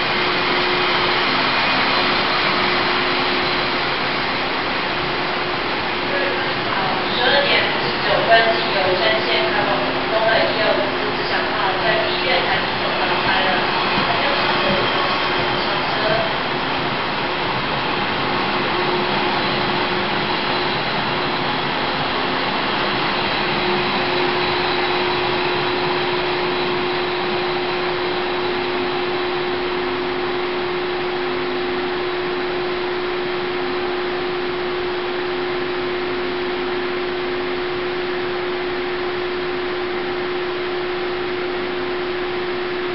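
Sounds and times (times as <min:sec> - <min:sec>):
train coaches rolling away: 0:00.0 - 0:29.3
station rushing hum: 0:00.0 - 0:42.9.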